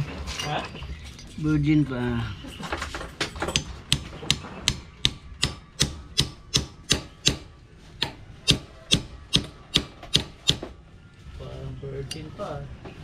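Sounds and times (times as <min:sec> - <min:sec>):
hammer tapping on metal: 0:03.5 - 0:10.7.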